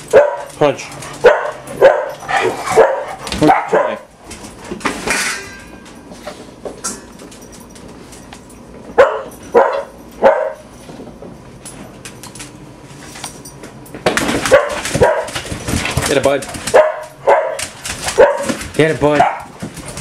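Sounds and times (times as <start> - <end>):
dog barking: 0.1 - 0.5, 1.2 - 4.1, 9.0 - 10.7, 14.5 - 15.4, 16.7 - 19.6.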